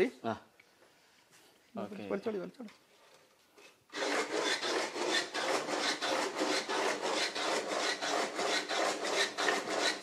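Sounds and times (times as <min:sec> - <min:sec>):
wooden churning stick rasping: 0:03.9 - 0:10.0.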